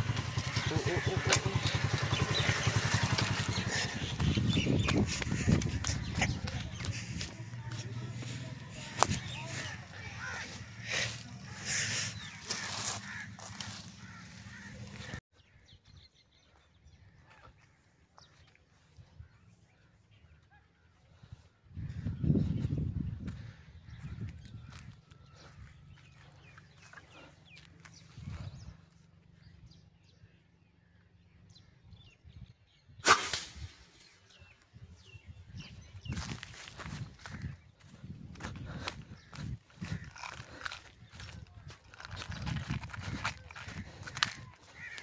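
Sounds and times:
bird chirps and calls: 0.0 - 17.5
small birds chirping: 0.0 - 33.1, 33.8 - 45.0.

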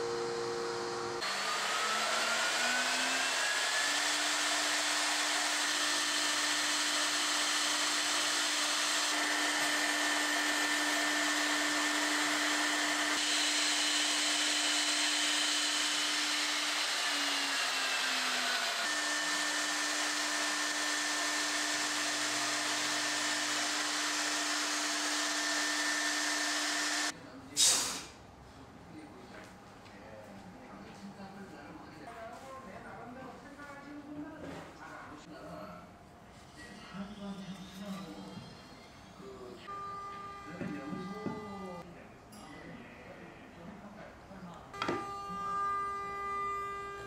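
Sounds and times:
router spindle whining: 0.0 - 27.1, 39.6 - 41.8.

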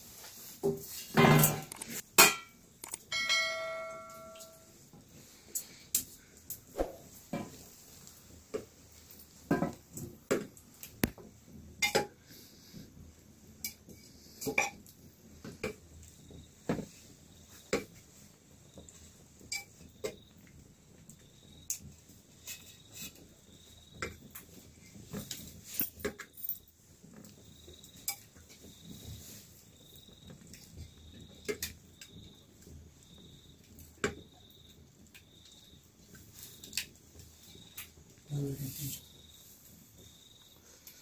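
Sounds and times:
steel plate ringing: 2.2 - 4.7.

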